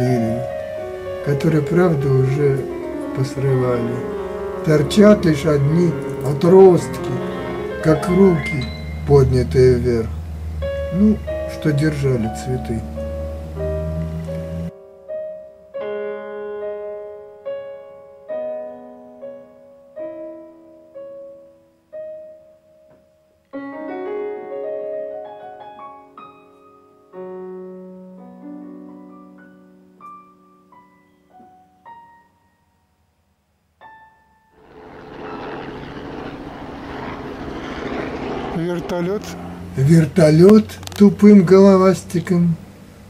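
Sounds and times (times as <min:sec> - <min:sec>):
solo piano notes and chords: 0:00.0 - 0:43.0
helicopter passing overhead: 0:00.8 - 0:12.2, 0:34.6 - 0:42.1.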